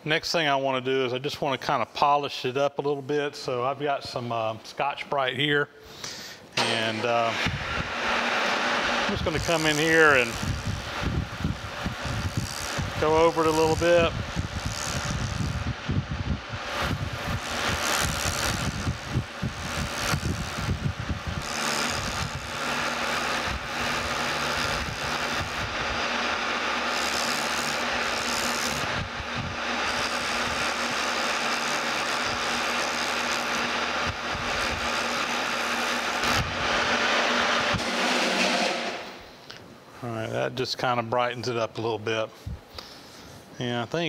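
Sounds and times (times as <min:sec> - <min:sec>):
abrasive pad rasping on steel: 0:06.6 - 0:39.4
lathe humming: 0:06.9 - 0:39.0.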